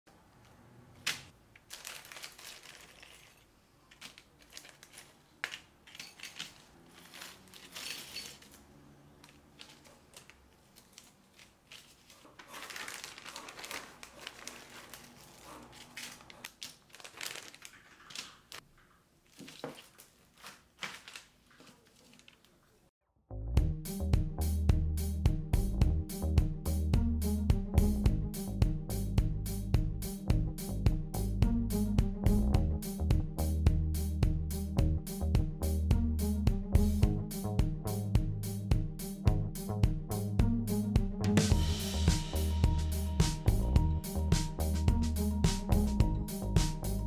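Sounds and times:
plastic bag crinkling: 1.5 - 22.9
small plastic parts clicking: 1.6 - 8.6.

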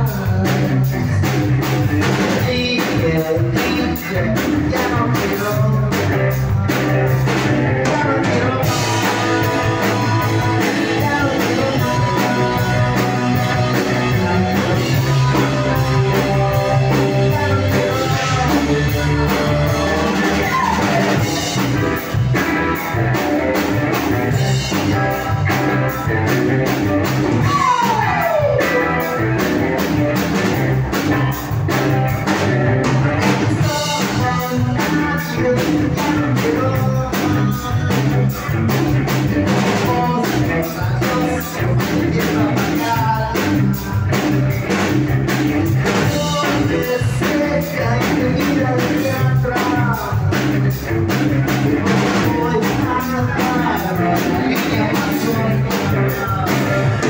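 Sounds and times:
person singing: 0.0 - 31.4, 33.1 - 57.0
drum kit: 0.0 - 57.0
electric guitars: 0.0 - 57.0
guitar downward slide: 6.5 - 34.0.

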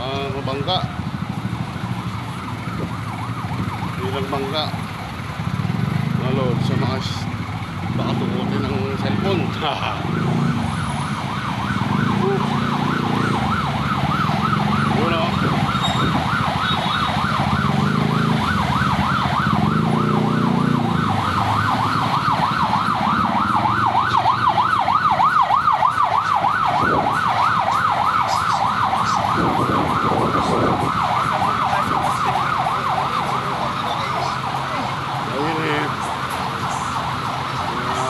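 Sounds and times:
street traffic rumble: 0.0 - 38.0
electronic siren yelping: 7.7 - 38.0.

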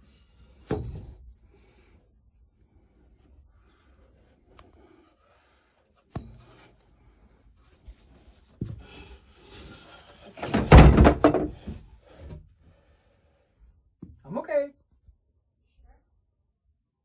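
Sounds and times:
rustling and scraping: 2.6 - 12.6.

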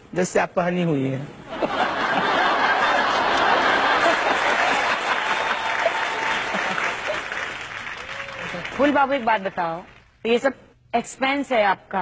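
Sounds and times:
audience applause: 2.4 - 10.0.

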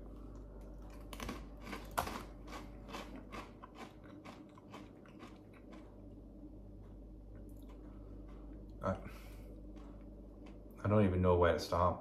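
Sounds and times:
chips being crunched: 0.9 - 5.9.

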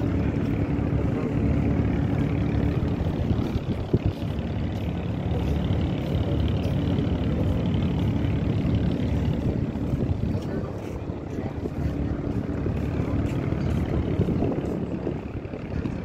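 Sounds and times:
low engine drone: 0.0 - 16.0.

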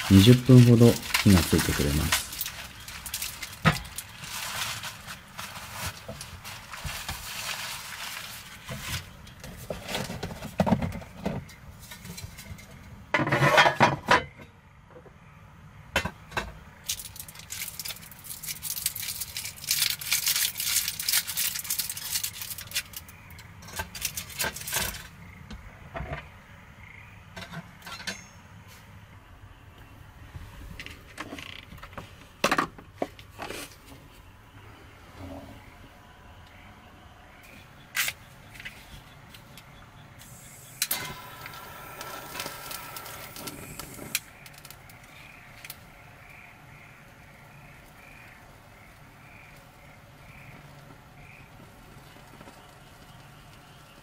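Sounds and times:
rustling: 0.0 - 12.8, 16.8 - 25.2.

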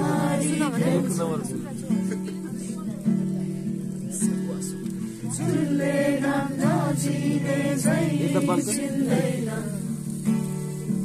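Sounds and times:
person singing: 5.4 - 10.1.

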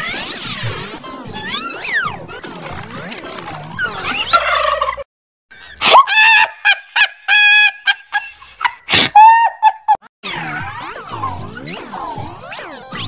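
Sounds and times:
music: 10.3 - 13.0.

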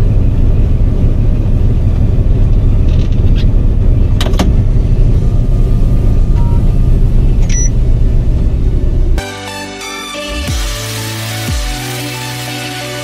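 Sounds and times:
diesel engine idling: 0.0 - 9.2.

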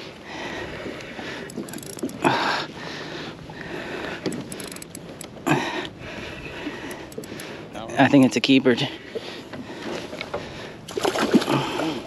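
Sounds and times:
fishing reel ticking: 1.0 - 2.5, 4.0 - 5.7, 6.8 - 8.3.

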